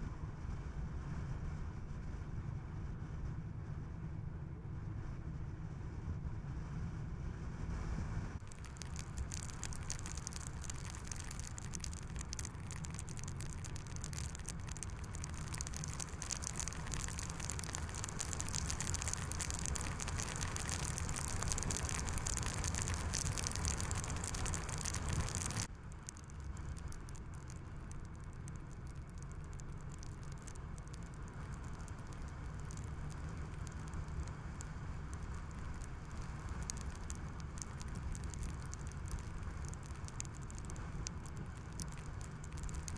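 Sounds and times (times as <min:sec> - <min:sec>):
tyre and wind noise: 0:07.7 - 0:42.9
bright pattering hiss: 0:08.4 - 0:42.9.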